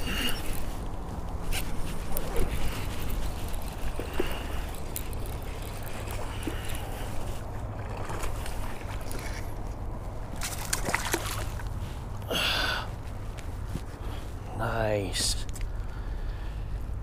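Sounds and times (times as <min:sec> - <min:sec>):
water splashing and sloshing: 0:00.0 - 0:14.5
fabric rubbing on microphone: 0:12.9 - 0:14.5.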